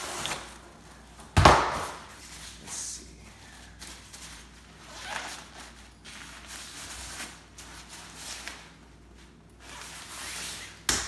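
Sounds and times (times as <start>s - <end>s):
nylon bag rustling: 3.6s - 10.8s.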